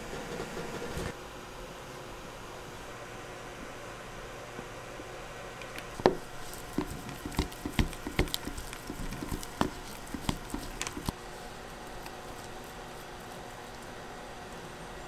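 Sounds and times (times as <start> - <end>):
spatula tapping plastic bowl: 6.0 - 11.2.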